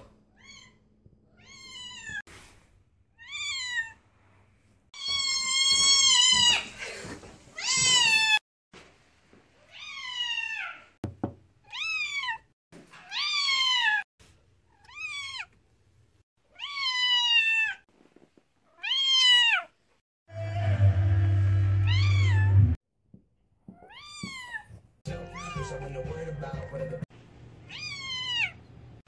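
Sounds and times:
cat meowing loudly: 21.8s - 22.7s, 27.7s - 28.6s.

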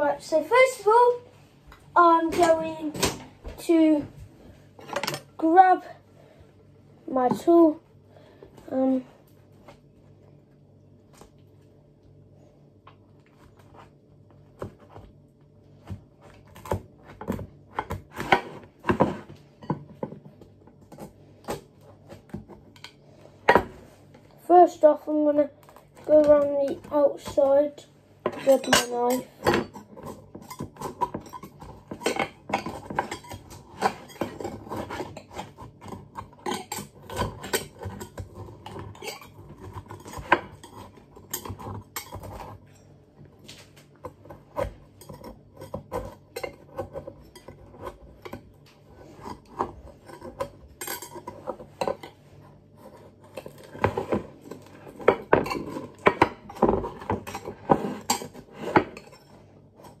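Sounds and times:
metal knife scraping a pan: 28.3s - 42.9s, 44.4s - 60.0s.

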